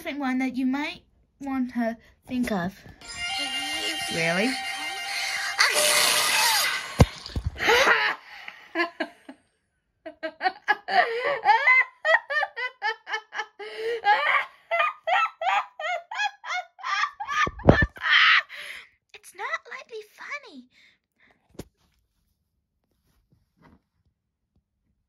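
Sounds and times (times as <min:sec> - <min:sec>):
cartoon soundtrack from phone speaker: 0:03.0 - 0:07.1
person laughing hard: 0:04.7 - 0:09.3, 0:10.1 - 0:18.4.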